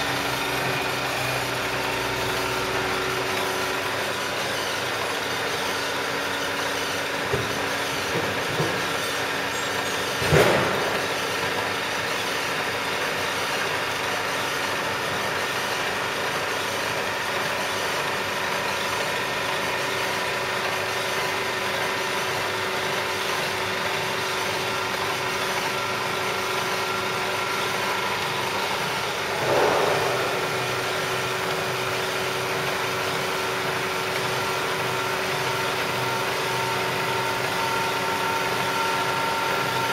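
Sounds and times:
milling machine humming: 0.0 - 39.9
loud machine clunk: 7.2 - 11.7, 27.8 - 32.1
machine knock: 29.2 - 31.9.

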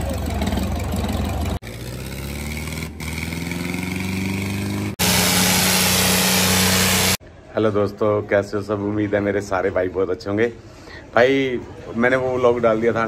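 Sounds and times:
tractor diesel engine revving: 0.0 - 7.2.

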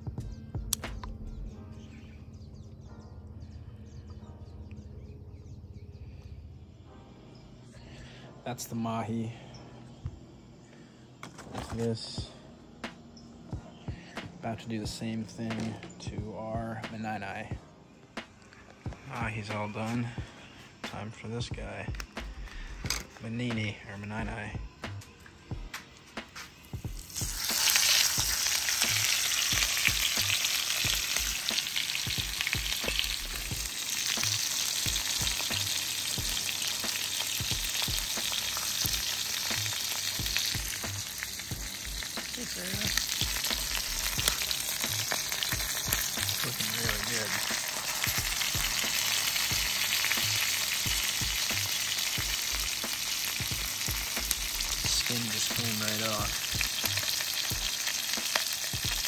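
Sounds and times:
fish sizzling in hot oil: 26.6 - 59.0.

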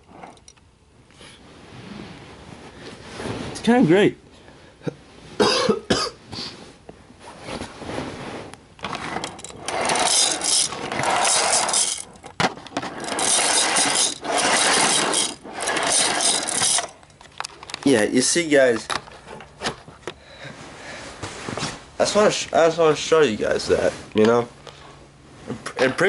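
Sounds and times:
toy train car rattling: 8.8 - 17.9.

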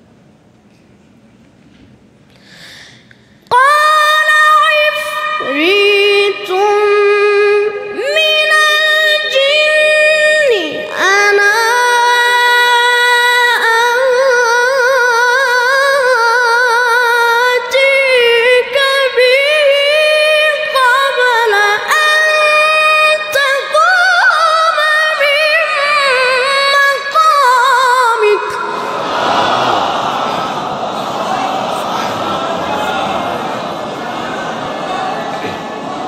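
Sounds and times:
person reciting melismatically: 3.5 - 35.7
noisy crowd: 25.6 - 36.0.

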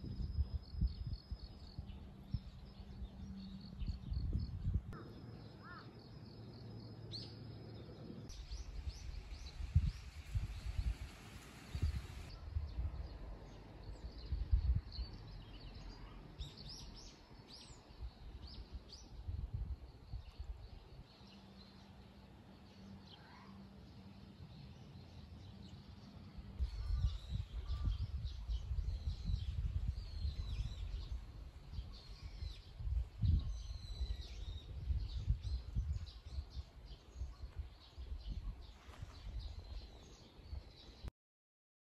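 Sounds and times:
wind buffeting microphone: 0.0 - 5.8, 6.6 - 21.0, 26.4 - 41.1
small birds chirping: 13.8 - 41.1.

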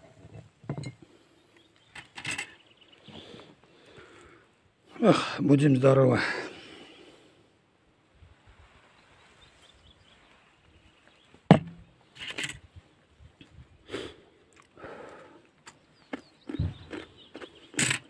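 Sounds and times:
person chewing crunchy pickle: 14.5 - 14.8, 15.6 - 18.0.

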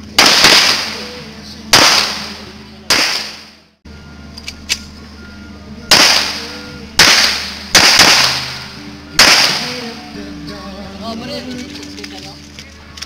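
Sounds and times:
pistol shots: 0.2 - 3.6, 5.9 - 10.0.

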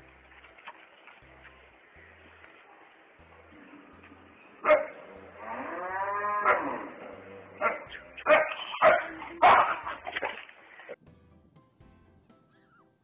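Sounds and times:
dog barking: 4.6 - 5.0, 6.4 - 6.8, 7.6 - 10.4.

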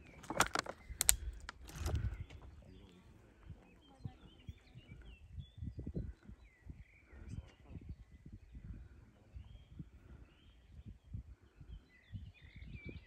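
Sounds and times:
faint birds chirping: 0.0 - 13.0
sharp clicks: 0.2 - 2.0.

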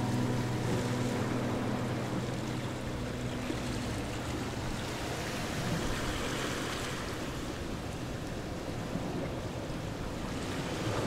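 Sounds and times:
low background music: 0.0 - 6.6
steady rushing noise: 0.0 - 8.1.

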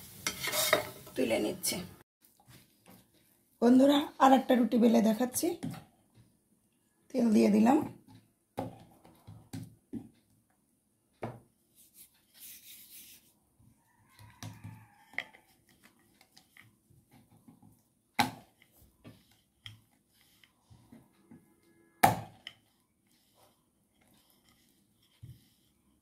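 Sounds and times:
dough rubbing and rolling: 11.7 - 17.8, 18.4 - 21.5, 22.3 - 26.0.

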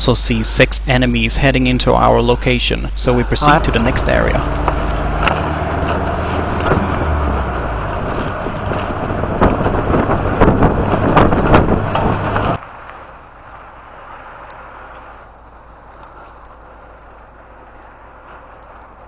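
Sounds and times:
outdoor background: 0.0 - 19.0
road noise: 0.0 - 19.0
vehicle engine hum: 0.0 - 19.0
knocking rattles: 4.6 - 12.6.

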